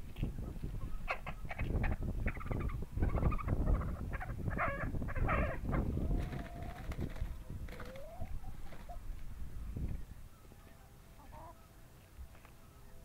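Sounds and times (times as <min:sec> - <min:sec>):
chickens squawking: 0:00.7 - 0:09.1, 0:10.4 - 0:11.9.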